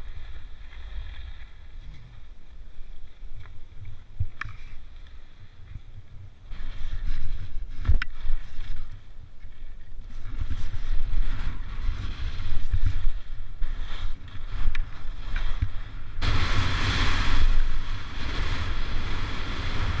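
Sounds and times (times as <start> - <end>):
wind buffeting microphone: 5.4 - 20.0
skis scraping over snow: 6.5 - 20.0.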